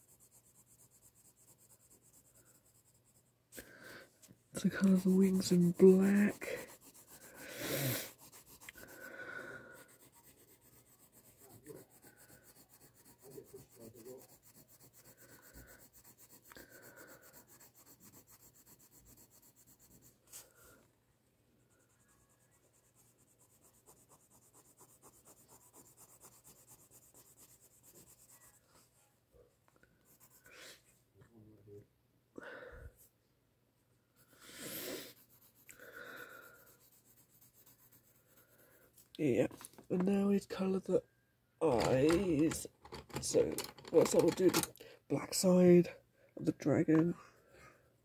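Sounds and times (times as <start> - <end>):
pencil scratching on paper: 0.0 - 3.6, 4.2 - 20.8, 21.6 - 29.0, 30.0 - 30.9, 34.2 - 40.7, 41.6 - 44.7.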